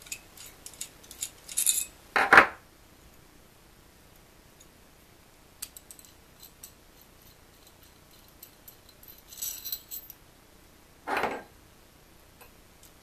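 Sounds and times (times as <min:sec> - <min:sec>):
light metallic clinks: 0:05.6 - 0:10.2.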